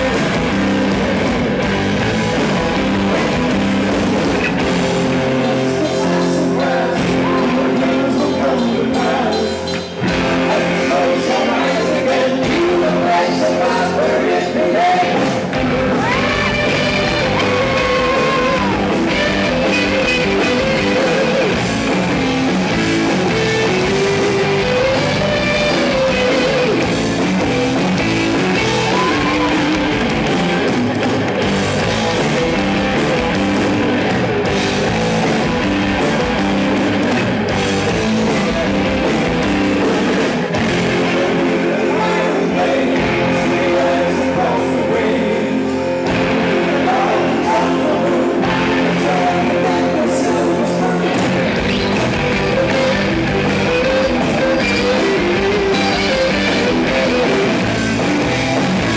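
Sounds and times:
drum kit: 0.0 - 58.9
electric guitars: 0.0 - 58.9
person singing: 5.2 - 21.6, 28.5 - 30.0, 40.8 - 57.5.

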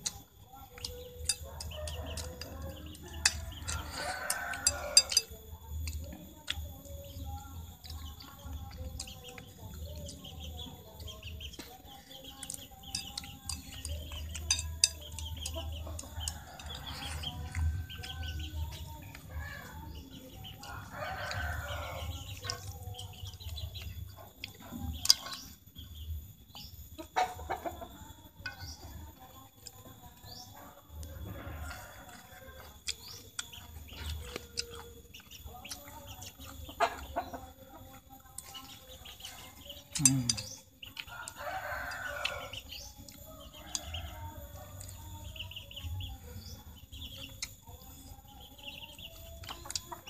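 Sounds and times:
chopsticks clicking against a plate: 0.0 - 10.4, 11.0 - 19.3, 20.4 - 25.6, 32.0 - 37.3, 37.9 - 44.2, 46.4 - 50.0
chickens clucking: 0.0 - 50.0.

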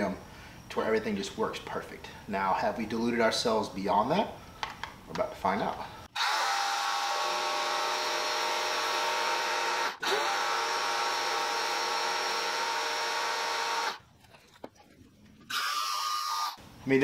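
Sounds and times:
pressure washer motor whine: 6.2 - 14.0.

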